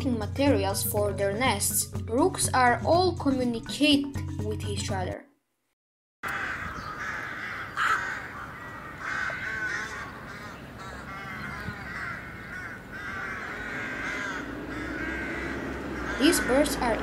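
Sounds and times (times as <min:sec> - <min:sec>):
rooks cawing: 0:06.2 - 0:17.0.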